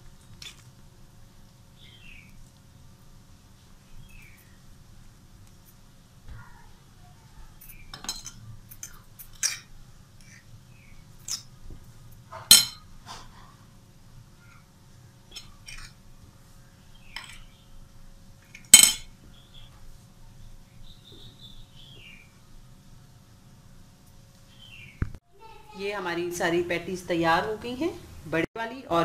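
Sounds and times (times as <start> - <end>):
fork clinking on ceramic plate: 12.4 - 12.9, 18.6 - 19.1.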